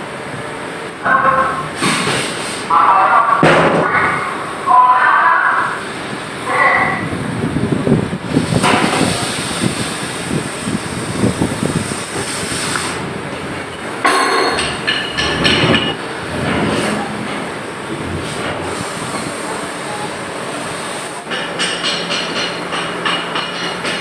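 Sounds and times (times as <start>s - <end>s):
metal clanks ringing: 14.0s - 17.5s.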